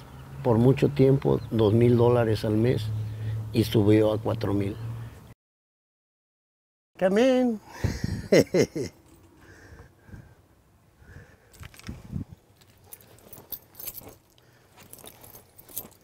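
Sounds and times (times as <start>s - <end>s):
light jingling: 8.5s - 9.6s, 11.4s - 16.0s
clinks clicks and rustles: 8.9s - 9.4s, 11.5s - 16.0s.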